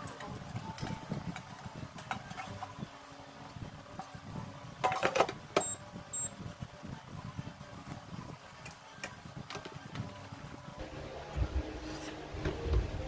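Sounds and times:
short high-pitched beeps: 0:05.6 - 0:06.3.

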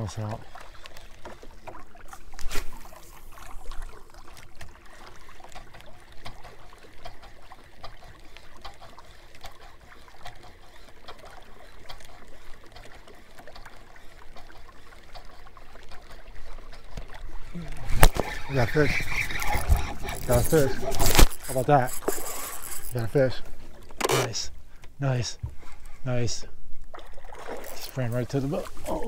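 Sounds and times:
water lapping against a canoe: 0:00.0 - 0:29.0
small ticks and clicks: 0:04.3 - 0:17.2, 0:18.1 - 0:23.2.

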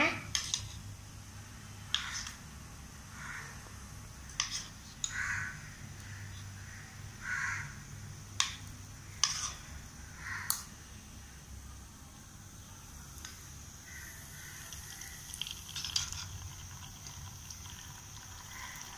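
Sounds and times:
crow cawing: 0:03.1 - 0:03.6, 0:05.1 - 0:07.8, 0:10.1 - 0:10.6, 0:13.8 - 0:15.2, 0:18.5 - 0:18.8.

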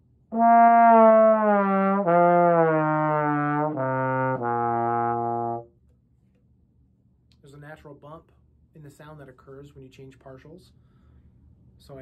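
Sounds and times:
trombone playing descending scale: 0:00.3 - 0:05.6.

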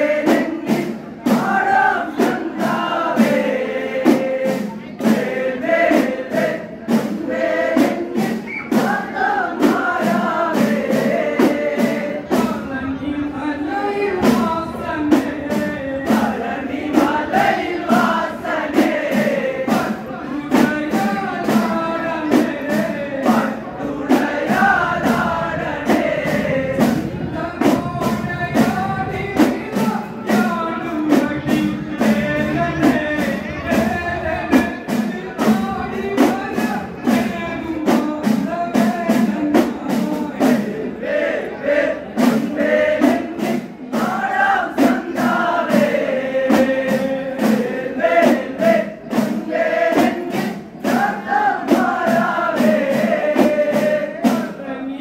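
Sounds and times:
men singing through microphones: 0:00.0 - 0:55.0
hand drums beating: 0:06.4 - 0:40.6.

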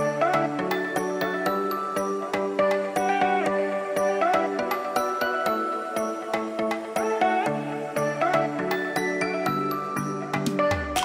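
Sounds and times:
light percussion beat: 0:10.3 - 0:11.0.

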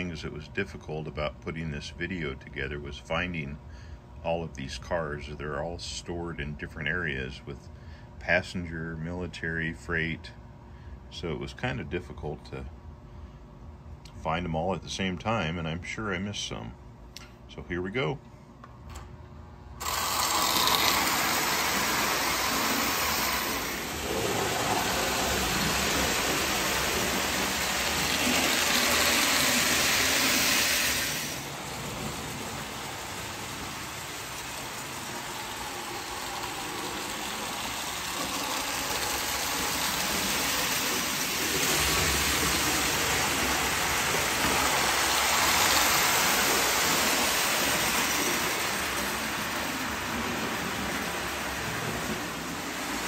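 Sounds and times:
toy train clattering on track: 0:19.8 - 0:24.0, 0:24.7 - 0:30.5, 0:32.0 - 0:53.0.

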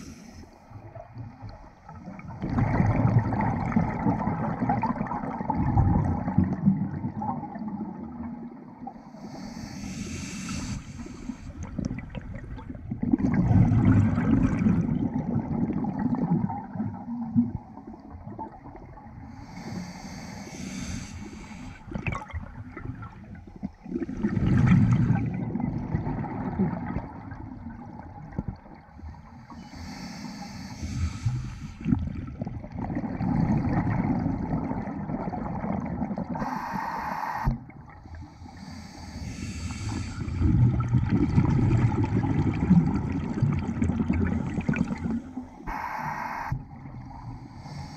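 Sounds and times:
hissing regulator inhale: 0:00.0 - 0:00.6, 0:09.1 - 0:11.6, 0:19.3 - 0:21.9, 0:29.5 - 0:31.9, 0:36.4 - 0:37.5, 0:38.1 - 0:40.5, 0:45.6 - 0:47.9
burbling exhaled bubbles: 0:01.9 - 0:08.5, 0:11.6 - 0:19.1, 0:21.9 - 0:28.9, 0:31.8 - 0:36.6, 0:40.2 - 0:45.8.

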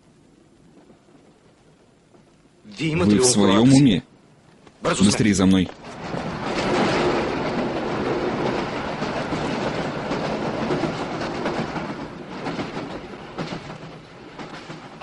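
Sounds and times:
train rumble: 0:04.9 - 0:15.0
wheels clattering on rails: 0:05.7 - 0:15.0.

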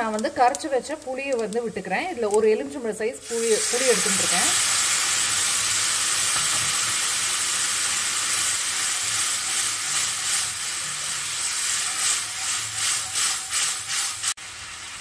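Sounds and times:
liquid sizzling in a hot pan: 0:03.2 - 0:15.0.

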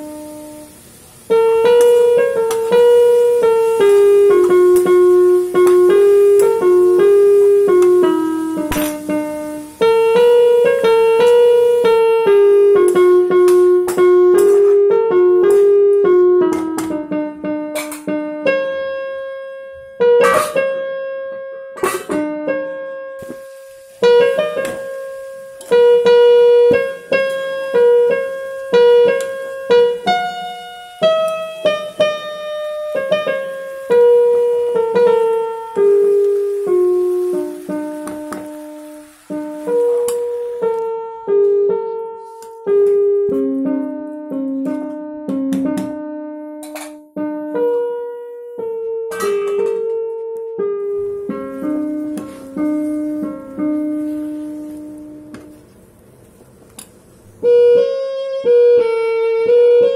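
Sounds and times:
keyboard melody: 0:57.3 - 0:59.9.

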